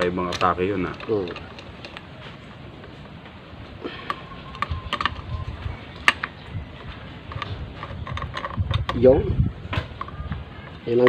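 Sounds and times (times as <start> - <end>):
tools clicking on metal parts: 0.0 - 2.0, 6.0 - 9.1.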